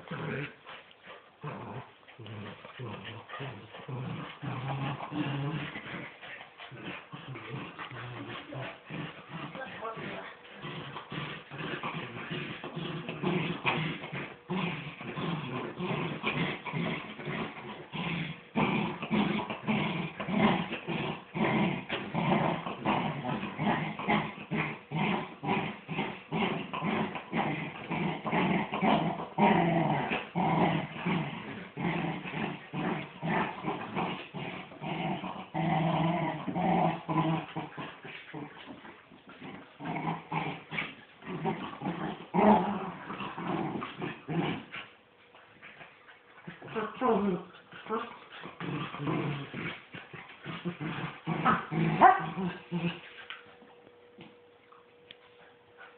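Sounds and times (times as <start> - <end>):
dogs growling: 0.0 - 53.6.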